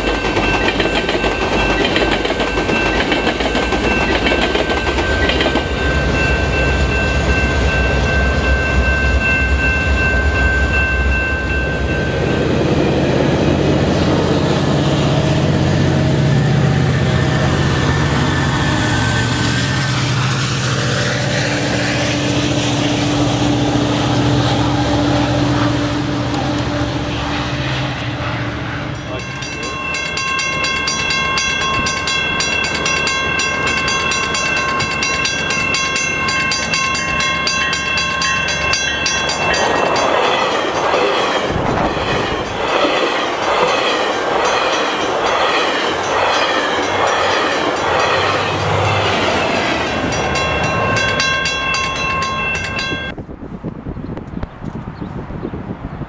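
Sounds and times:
level-crossing warning bell ringing: 0.0 - 25.6, 28.0 - 53.2
train wheels rumbling on rail: 0.0 - 56.0
low engine drone: 21.2 - 29.6.

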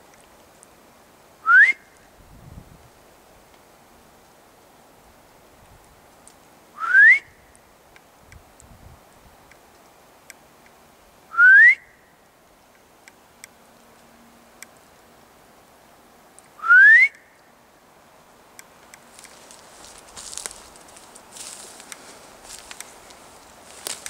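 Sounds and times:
person whistling: 1.5 - 1.8, 6.8 - 7.3, 11.3 - 11.9, 16.6 - 17.2.

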